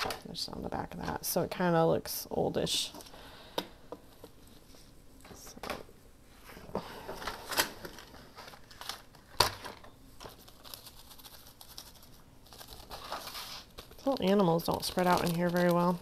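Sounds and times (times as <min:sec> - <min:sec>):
paper rustling and crinkling: 0:06.6 - 0:16.0.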